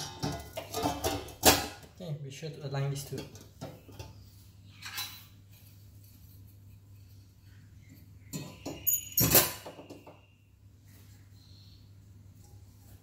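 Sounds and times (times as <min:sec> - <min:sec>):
light metal clinks: 0:08.6 - 0:09.6.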